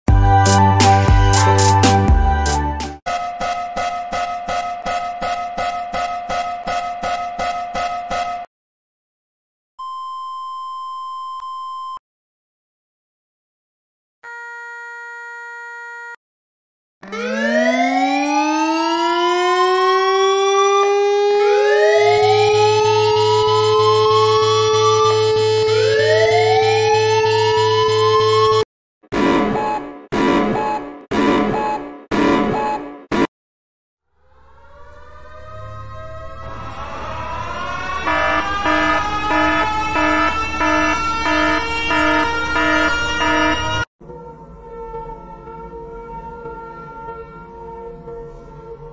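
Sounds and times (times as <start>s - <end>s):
two-tone hi-lo alarm: 3.1s - 8.2s, 21.5s - 28.6s, 35.6s - 43.9s
electronic siren winding up: 17.0s - 28.6s, 34.2s - 43.9s.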